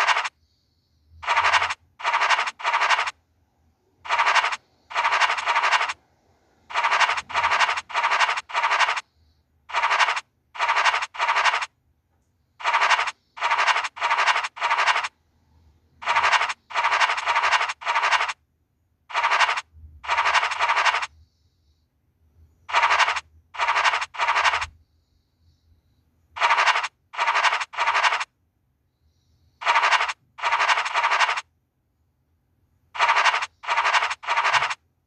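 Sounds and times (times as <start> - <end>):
scratch card scratching strokes: 0.0 - 0.3, 1.2 - 3.2, 4.1 - 6.0, 6.7 - 9.1, 9.7 - 11.7, 12.6 - 15.1, 16.0 - 18.4, 19.1 - 21.2, 22.7 - 24.7, 26.4 - 28.3, 29.6 - 31.5, 33.0 - 34.8.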